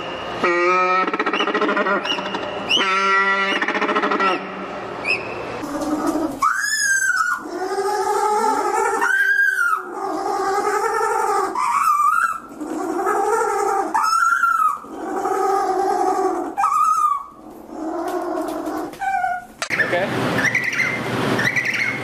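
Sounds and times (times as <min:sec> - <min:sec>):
penguin braying call: 0:00.4 - 0:04.6, 0:05.6 - 0:17.4.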